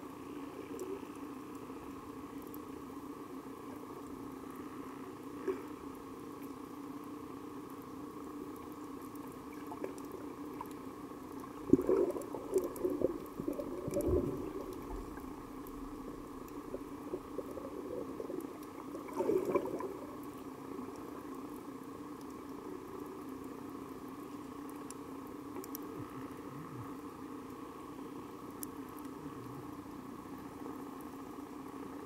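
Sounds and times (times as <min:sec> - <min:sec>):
steady hum: 0:00.0 - 0:32.0
faint scattered clicks: 0:00.6 - 0:02.8, 0:05.4 - 0:27.6, 0:28.2 - 0:29.9
underwater bubbles gurgling: 0:08.2 - 0:23.6.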